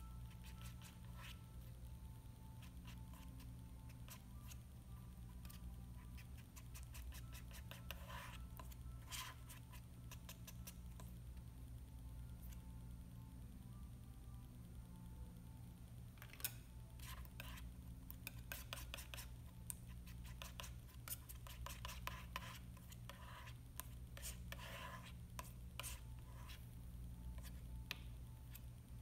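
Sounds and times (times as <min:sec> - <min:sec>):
faint low steady hum: 0:00.0 - 0:29.0
palette knife scraping paint: 0:00.3 - 0:01.7, 0:05.4 - 0:10.8, 0:17.0 - 0:19.4, 0:20.0 - 0:26.7.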